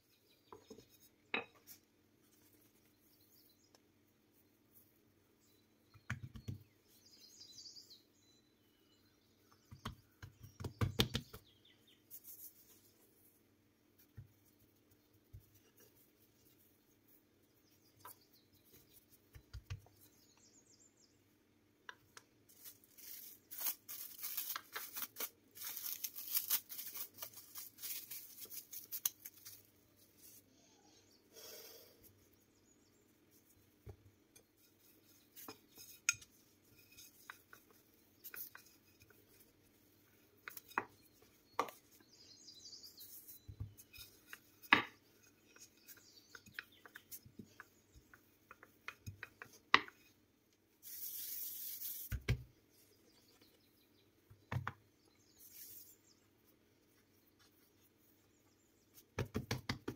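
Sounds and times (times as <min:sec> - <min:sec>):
hand rubbing flour on dough: 0:09.7 - 0:20.3, 0:32.0 - 0:42.3, 0:42.9 - 0:53.5, 0:55.3 - 0:59.9
cling film crinkling: 0:22.5 - 0:29.8
rolling pin rolling dough: 0:43.0 - 0:50.2.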